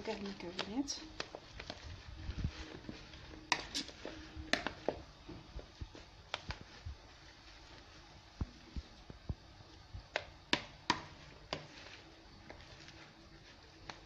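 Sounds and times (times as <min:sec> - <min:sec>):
hand squishing filling: 0:00.0 - 0:09.2.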